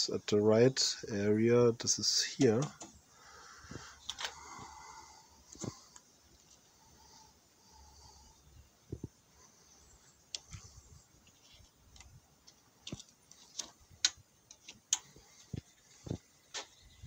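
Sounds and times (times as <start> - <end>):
wiring clicking and tapping: 2.4 - 3.0, 10.3 - 16.7.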